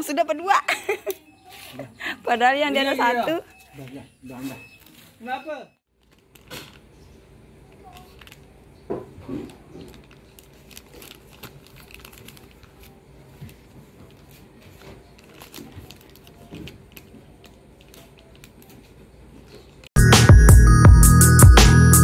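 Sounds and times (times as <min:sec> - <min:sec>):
plastic bag crinkling: 0:05.9 - 0:19.6.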